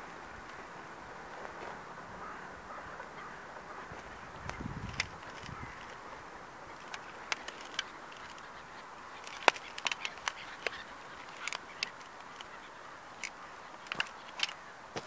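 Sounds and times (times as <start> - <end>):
metal toy car cracking and creaking: 4.7 - 6.0, 6.8 - 12.6, 13.2 - 14.6.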